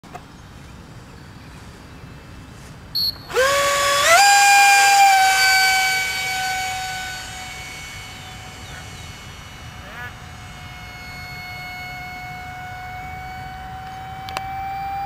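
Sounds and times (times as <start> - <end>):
short high beep: 3.0 - 3.3
electric motor whine: 3.0 - 15.0.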